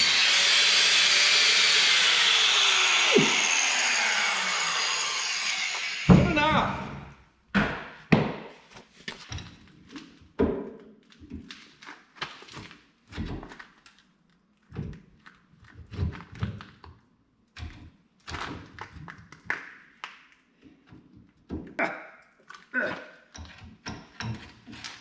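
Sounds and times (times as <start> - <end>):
tools and parts knocking: 23.3 - 24.8.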